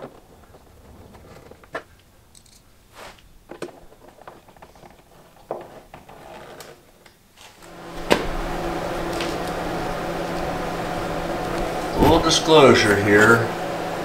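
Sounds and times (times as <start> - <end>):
steady hum: 7.6 - 14.0.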